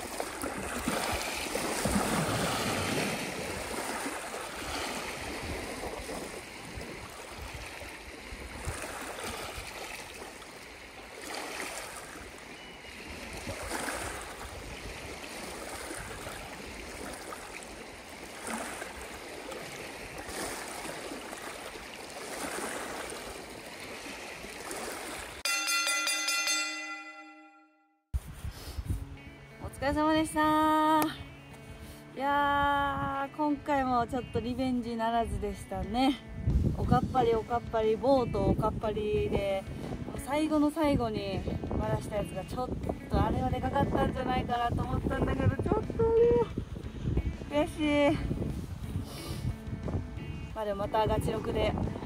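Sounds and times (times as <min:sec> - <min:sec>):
lake waves lapping: 0:00.0 - 0:26.1
musical chime: 0:25.5 - 0:28.0.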